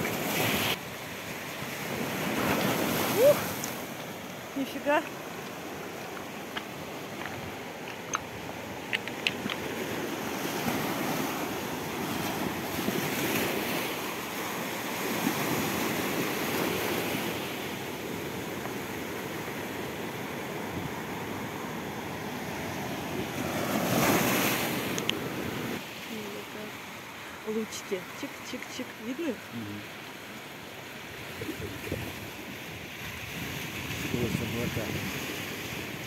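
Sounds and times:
surf on pebbly shore: 0.0 - 36.0
wind on microphone: 31.2 - 36.0.

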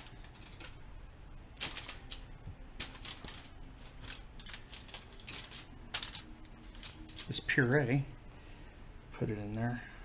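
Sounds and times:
aluminium foil crinkling: 0.0 - 0.8, 1.5 - 7.6.

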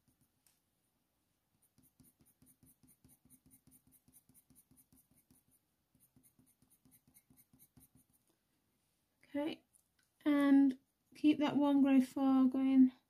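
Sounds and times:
coloured pencil scratching on paper: 1.5 - 8.3.

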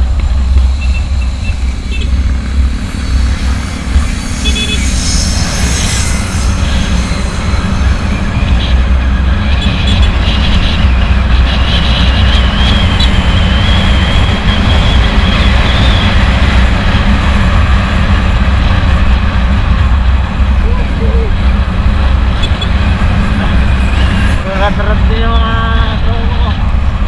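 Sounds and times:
thin high whine: 0.0 - 19.2
scooter engine rumbling: 0.0 - 24.5
wind on microphone: 0.0 - 27.0.

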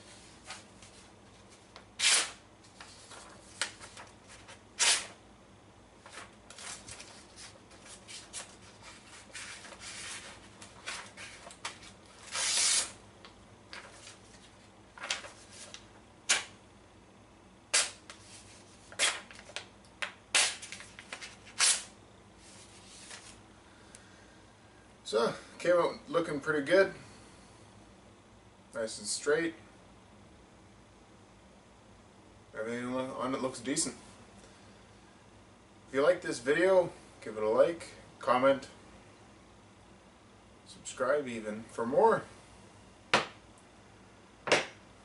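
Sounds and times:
knife slicing paper: 2.0 - 2.4, 4.8 - 5.2, 6.5 - 13.0, 17.7 - 19.4, 21.4 - 21.9.

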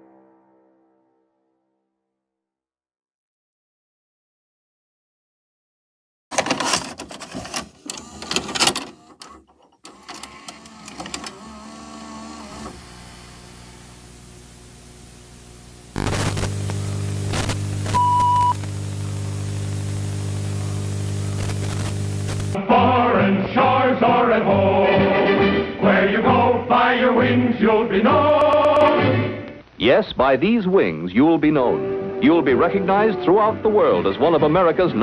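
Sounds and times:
vcr mechanism clunking and whirring: 6.3 - 13.6
low electrical buzz: 10.2 - 22.6
tape hiss: 10.6 - 22.6, 27.8 - 32.5
short high beep: 18.0 - 18.6.

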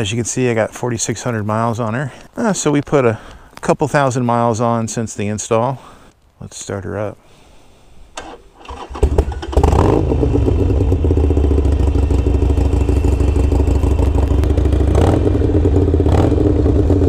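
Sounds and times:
starter cranking: 8.2 - 10.3
motorcycle engine idling: 8.7 - 17.0.

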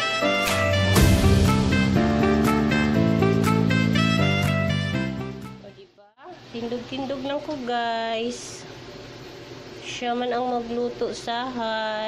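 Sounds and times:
background guitar music: 0.0 - 5.8.

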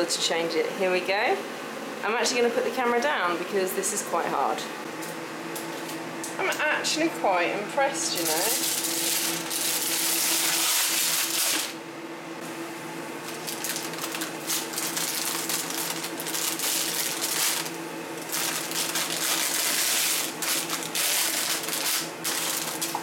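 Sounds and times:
extractor fan humming: 0.0 - 23.0
baking paper rustling: 8.1 - 11.8, 13.2 - 23.0.

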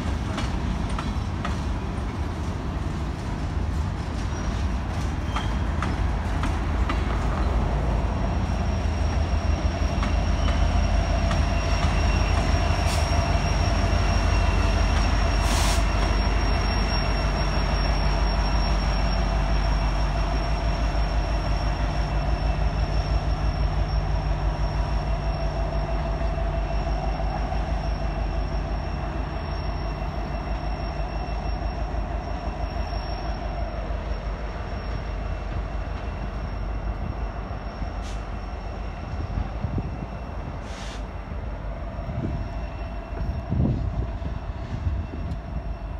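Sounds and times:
diesel locomotive running: 0.0 - 45.9
train wheels rumbling on rail: 0.0 - 45.9
thin wheel squeal: 4.2 - 6.0, 8.2 - 35.4.

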